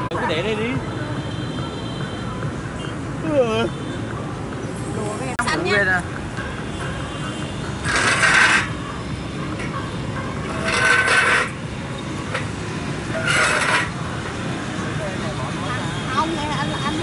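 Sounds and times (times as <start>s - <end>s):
street traffic hum: 0.0s - 17.0s
short rasping scrapes: 7.8s - 8.8s, 10.5s - 11.6s, 13.1s - 14.0s.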